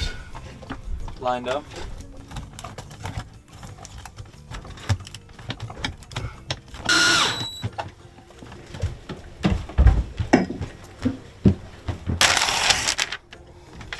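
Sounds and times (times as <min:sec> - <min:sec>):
hands clicking and knocking hardware: 0:02.2 - 0:06.8
cordless drill whine: 0:06.9 - 0:07.6.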